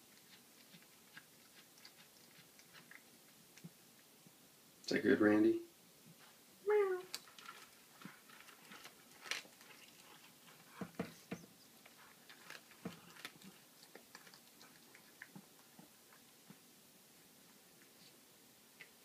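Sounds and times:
cat chewing bones: 0:00.0 - 0:03.8, 0:07.2 - 0:16.6.

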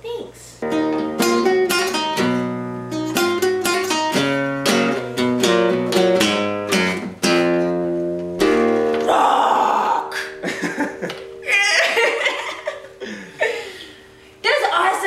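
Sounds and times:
classical guitar strummed: 0:00.6 - 0:09.1, 0:10.0 - 0:11.5.

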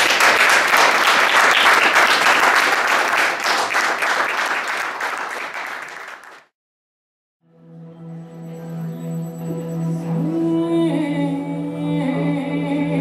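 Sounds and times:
crowd applauding: 0:00.0 - 0:06.5.

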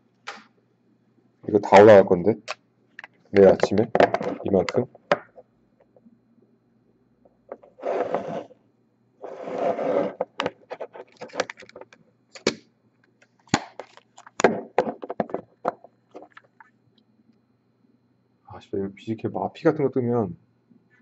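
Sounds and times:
plastic card holders scraping on table: 0:07.6 - 0:08.5, 0:09.2 - 0:11.6.

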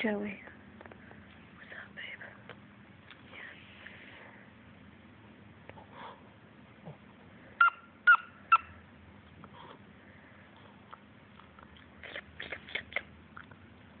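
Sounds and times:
small dog yipping: 0:07.6 - 0:08.8.

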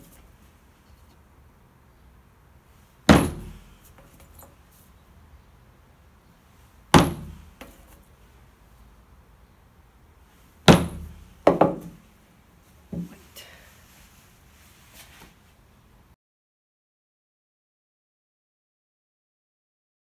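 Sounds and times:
hammer knocking nails into wood: 0:03.1 - 0:03.6, 0:07.0 - 0:07.8, 0:10.7 - 0:12.0.

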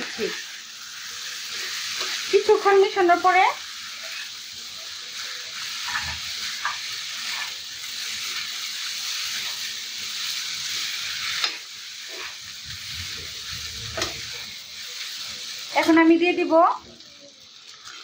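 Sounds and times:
food sizzling in frying pan: 0:00.0 - 0:18.0.

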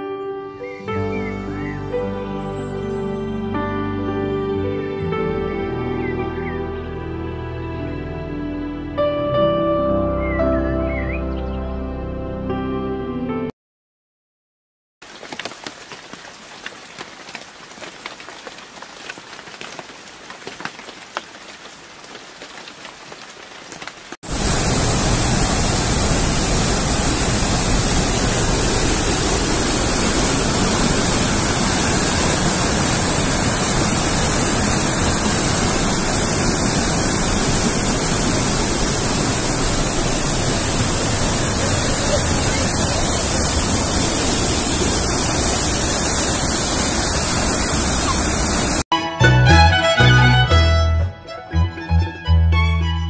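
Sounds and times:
river water rushing over a weir: 0:24.3 - 0:48.8.

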